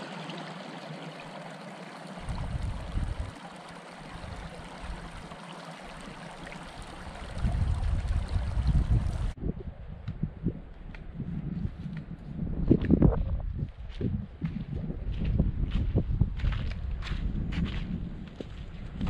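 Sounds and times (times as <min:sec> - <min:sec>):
stream trickling over rocks: 0:00.0 - 0:09.4
wind gusts hitting microphone: 0:02.2 - 0:03.3, 0:07.1 - 0:19.0.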